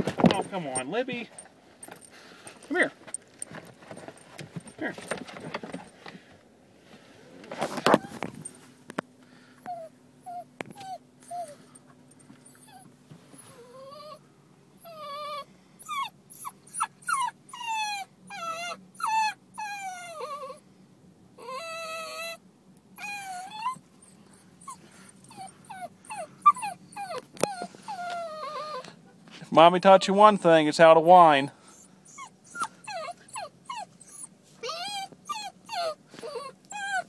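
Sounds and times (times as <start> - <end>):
dog whining: 7.7 - 8.6, 9.6 - 20.6, 21.4 - 22.4, 23.0 - 29.2, 31.7 - 37.0.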